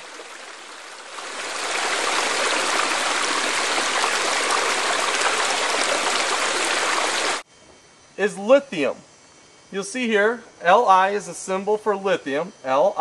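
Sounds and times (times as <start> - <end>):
creek splashing over stones: 0.0 - 7.4.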